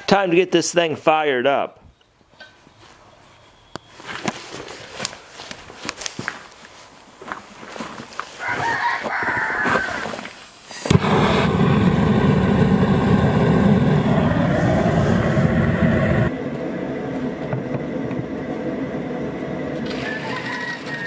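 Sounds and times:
gas burner igniting and roaring: 9.6 - 21.0.

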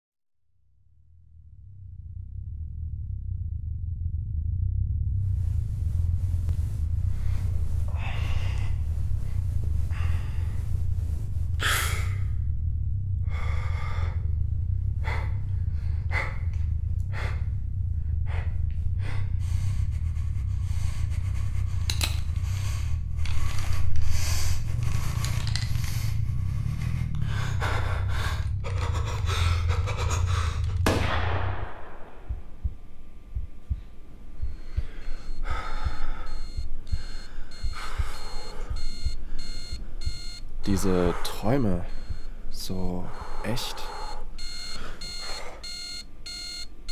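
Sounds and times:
low steady hum: 0.6 - 46.9
man panting and gasping: 7.9 - 10.8, 13.2 - 30.9, 34.4 - 45.8
high electronic beeping: 34.4 - 46.9.

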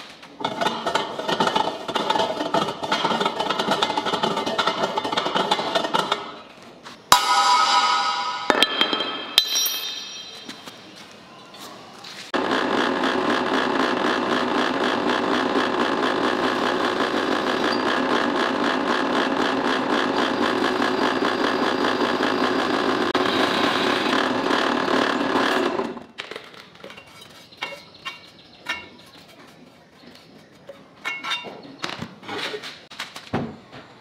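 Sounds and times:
electric drill boring through steel: 12.4 - 26.0.

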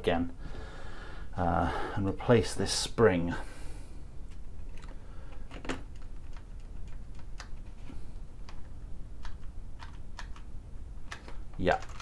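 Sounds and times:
keyboard keys clicking: 4.7 - 7.7, 8.4 - 10.5, 11.1 - 12.0.

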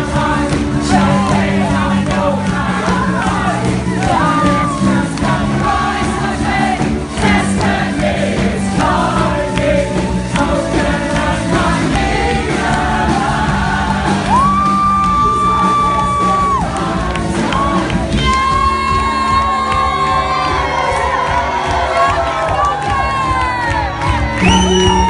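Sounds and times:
live band dance music with singing: 0.0 - 25.0
crowd cheering and whooping: 2.8 - 5.7, 14.0 - 25.0.

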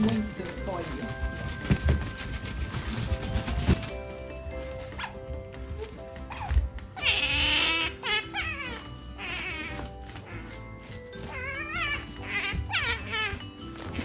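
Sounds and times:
background music: 0.0 - 14.0
otter squeaking: 0.0 - 14.0.

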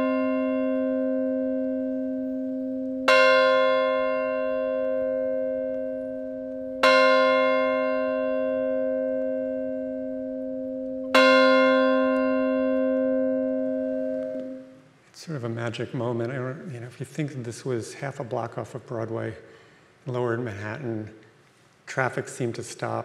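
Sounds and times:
church bell ringing: 0.0 - 14.8.

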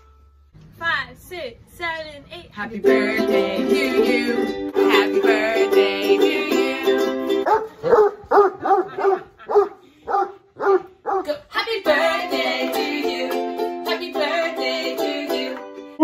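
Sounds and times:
ukulele strumming chords: 2.8 - 7.4, 11.5 - 16.0
dog barking: 7.4 - 11.4.

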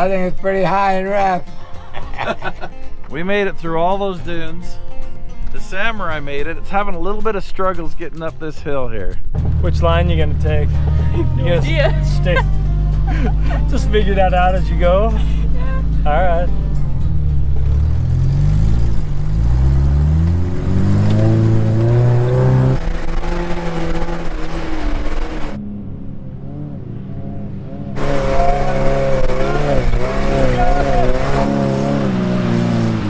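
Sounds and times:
car engine revving under load: 9.4 - 33.0.

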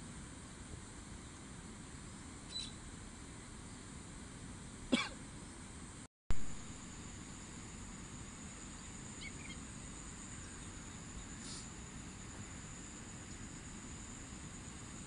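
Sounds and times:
faint high whine: 0.0 - 15.0
steady hiss: 6.4 - 15.0.

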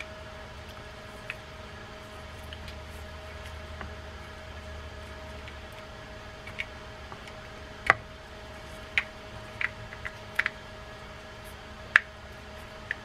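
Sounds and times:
small parts clicking and tapping: 5.4 - 8.0, 8.9 - 10.6.

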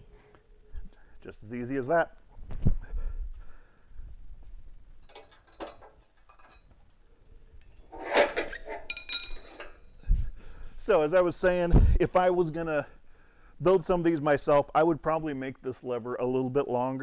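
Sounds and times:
metal clanking and rattling: 5.0 - 7.0, 7.6 - 9.9.

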